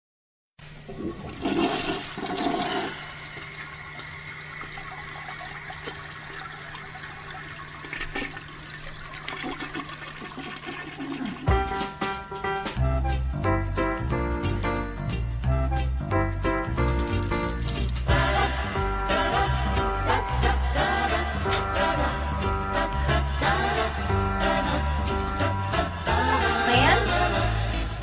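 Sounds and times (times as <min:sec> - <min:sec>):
toilet flushing: 0:00.7 - 0:12.1
keyboard music: 0:11.4 - 0:28.0.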